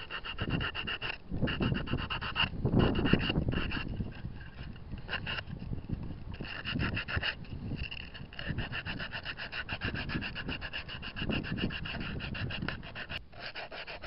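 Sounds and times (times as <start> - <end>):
sandpaper rubbing on wood: 0.0 - 3.9, 8.4 - 14.0.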